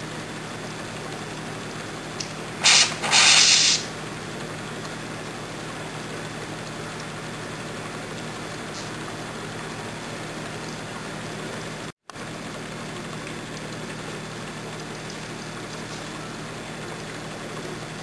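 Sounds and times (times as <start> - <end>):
torch hissing: 2.2 - 3.9.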